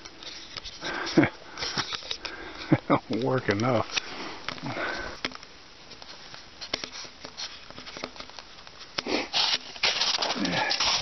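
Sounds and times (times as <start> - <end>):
low hiss: 0.0 - 11.0
crunching on snow: 9.0 - 11.0.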